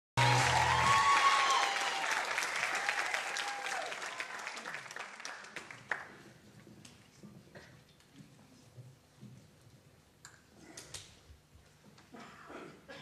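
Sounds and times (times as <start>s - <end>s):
audience applause: 0.2s - 6.2s.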